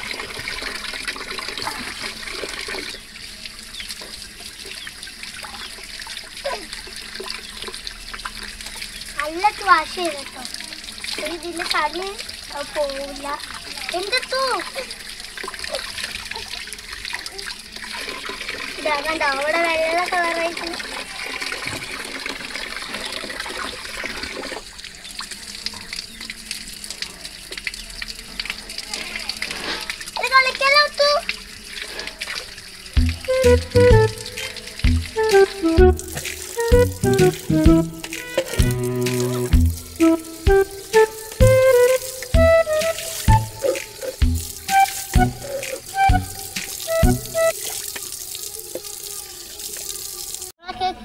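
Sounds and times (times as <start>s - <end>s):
water running from tap: 0.0s - 50.6s
water splashing over roots: 26.8s - 50.5s.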